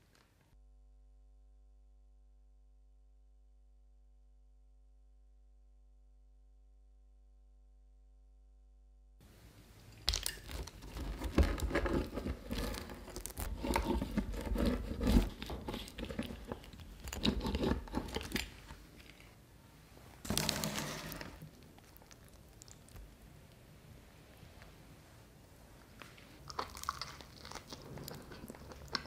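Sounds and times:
pizza cutter crunching through crust: 0:10.5 - 0:18.4.

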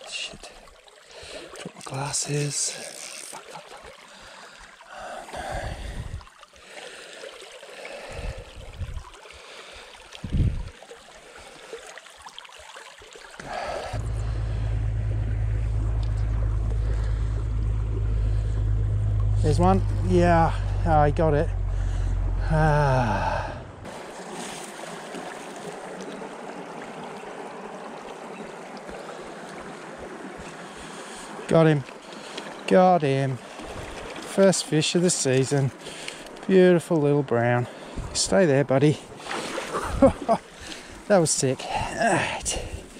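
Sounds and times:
creek trickling: 0:00.0 - 0:42.9.

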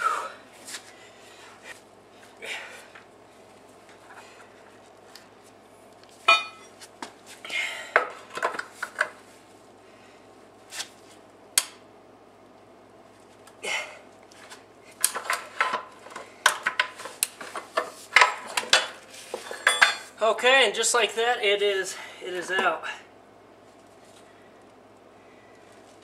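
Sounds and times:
pry bar clinking on metal: 0:19.6 - 0:20.1.

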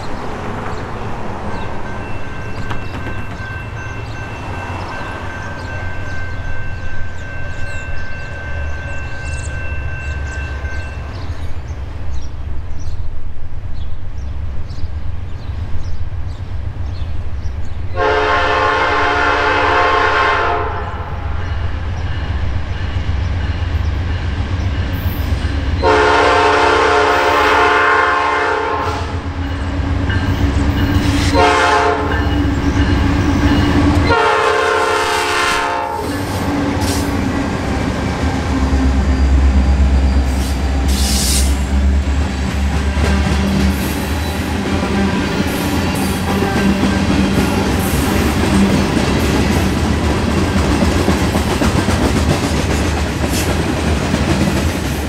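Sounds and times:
train wheels clacking on rails: 0:00.0 - 0:12.2, 0:28.8 - 0:55.0
locomotive horn: 0:18.0 - 0:21.4, 0:25.8 - 0:29.3, 0:31.0 - 0:32.4, 0:33.3 - 0:37.1.

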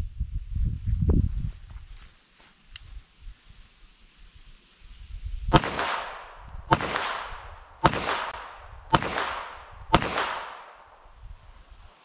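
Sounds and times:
pistol shots: 0:05.5 - 0:11.0.

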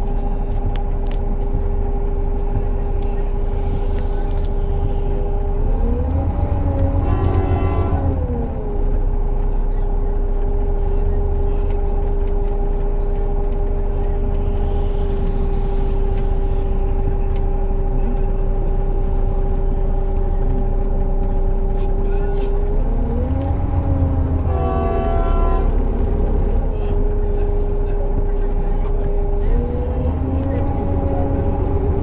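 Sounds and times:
vehicle low rumble: 0:00.0 - 0:32.0
vehicle whine: 0:00.0 - 0:32.0
buzzy horn-like tone: 0:07.0 - 0:08.1, 0:24.4 - 0:25.8.

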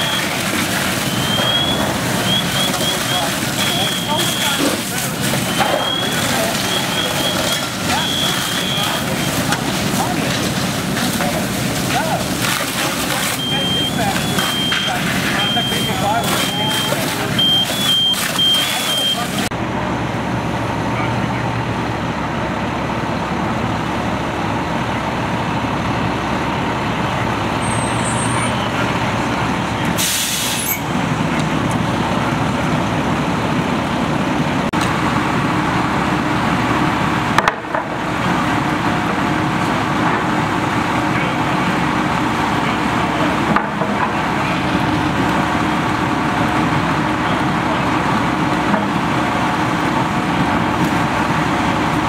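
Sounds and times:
diesel engine running: 0:00.0 - 0:52.0
sharp hiss of air: 0:30.0 - 0:30.7.

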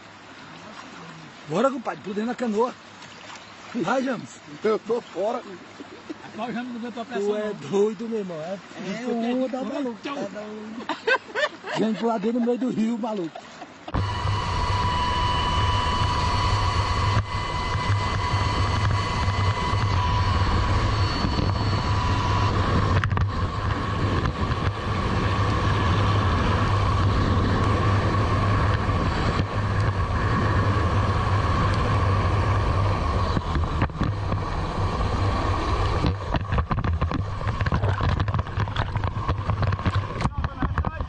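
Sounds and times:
splashing waves: 0:00.0 - 0:41.0
helicopter rotor and engine: 0:13.9 - 0:41.0
wind rushing over microphone: 0:13.9 - 0:41.0.

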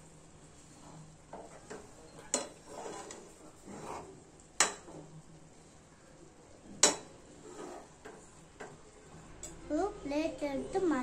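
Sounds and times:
metal spoon scraping a pan: 0:00.6 - 0:05.0, 0:06.8 - 0:08.7.

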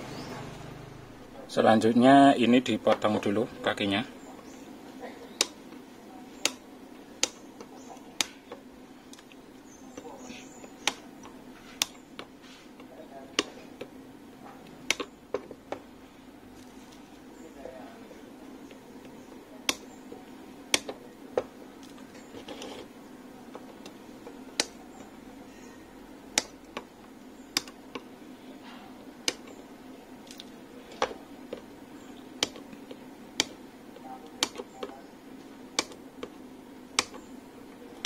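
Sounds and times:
side cutters snipping wire leads: 0:07.2 - 0:09.3, 0:29.2 - 0:29.6.

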